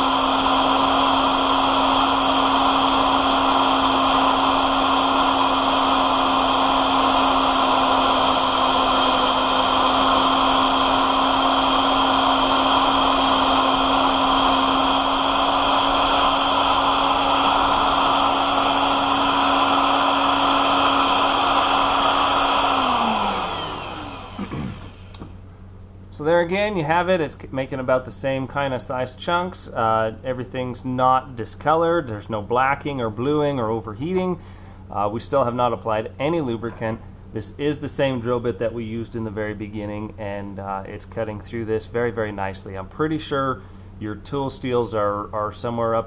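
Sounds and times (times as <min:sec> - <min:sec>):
drill bit cutting steel: 0:00.0 - 0:25.3
drill press motor hum: 0:00.0 - 0:25.4.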